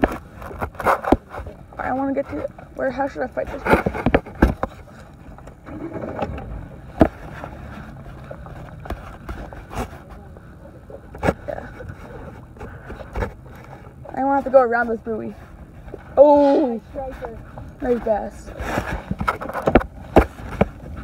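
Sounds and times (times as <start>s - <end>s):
steady low rumble: 1.2s - 21.0s.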